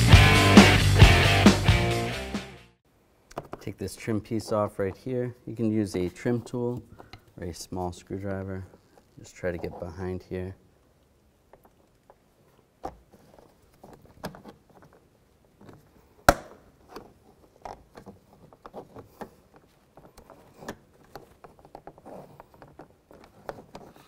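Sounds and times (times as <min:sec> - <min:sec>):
plastic trim clicking and scraping: 0:16.8 - 0:24.0.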